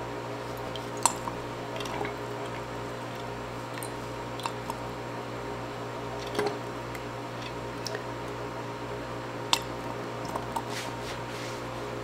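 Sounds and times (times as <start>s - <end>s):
steady low hum: 0.0s - 12.0s
pipette squishes and clicks: 0.5s - 4.9s, 6.1s - 8.4s, 9.5s - 10.7s.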